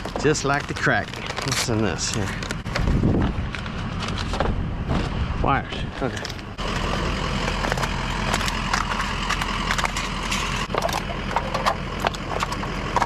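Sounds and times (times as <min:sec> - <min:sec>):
scrap items clattering: 0:00.0 - 0:05.1.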